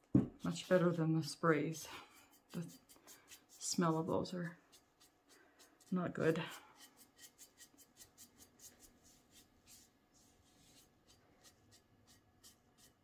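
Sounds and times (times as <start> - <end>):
sponge brush strokes: 0.3 - 13.0.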